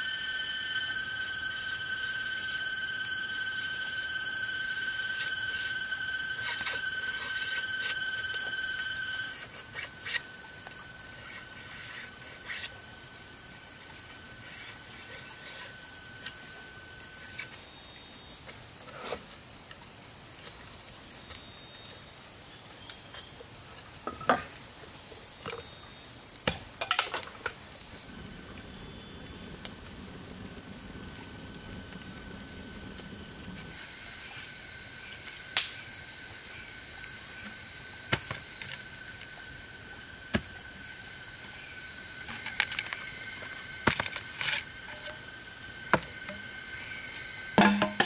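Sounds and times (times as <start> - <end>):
forest insects chirring: 0.0 - 48.0
machete scraping bamboo: 9.3 - 10.3, 11.2 - 12.8, 43.8 - 45.3, 47.6 - 48.0
wood fire rushing: 27.8 - 34.2.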